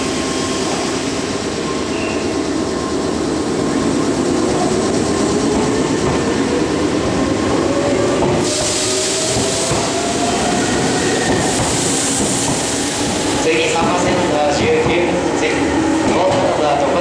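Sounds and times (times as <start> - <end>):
train wheels running: 0.0 - 17.0
hiss: 8.4 - 13.5.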